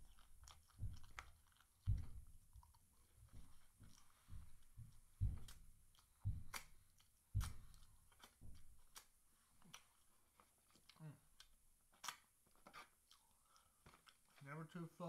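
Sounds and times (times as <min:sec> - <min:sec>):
lips smacking and finger licking: 0:00.0 - 0:04.7, 0:05.4 - 0:14.4
chewing thuds: 0:00.0 - 0:10.9.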